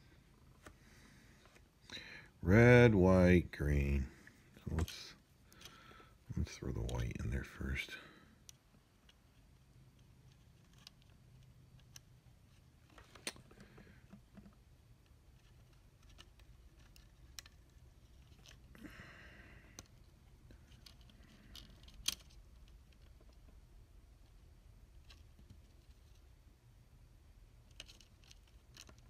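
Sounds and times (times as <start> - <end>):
soft hiss: 0.0 - 29.0
small clicks and taps of parts: 8.4 - 18.7, 19.7 - 23.6, 27.6 - 29.0.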